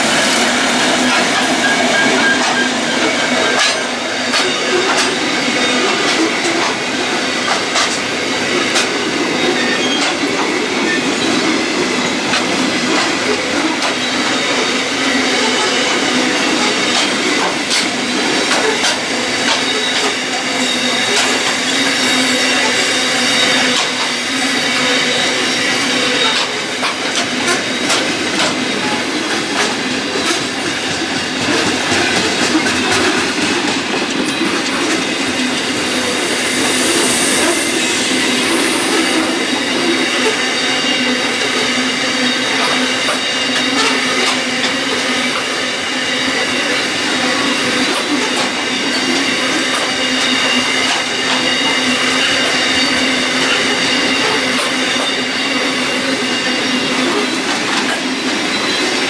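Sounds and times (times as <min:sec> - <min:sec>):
train wagons rumbling past: 0:00.0 - 0:59.0
high-pitched wheel squeal: 0:00.9 - 0:06.4, 0:34.8 - 0:57.3.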